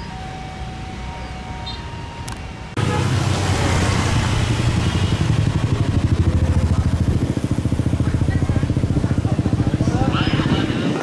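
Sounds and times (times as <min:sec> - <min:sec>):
engine running with fast pulse: 0:02.8 - 0:10.7.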